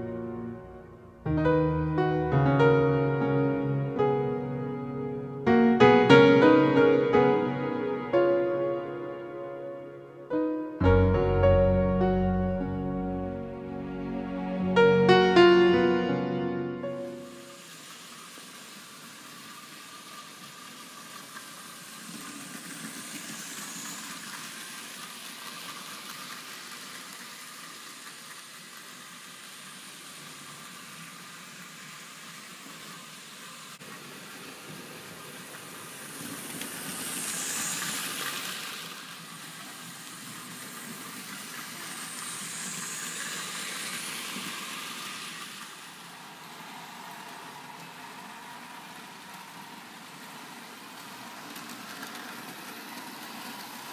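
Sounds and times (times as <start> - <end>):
model train motors whirring: 17.4 - 53.9
wagons rolling on rails: 17.6 - 33.1, 33.9 - 53.9.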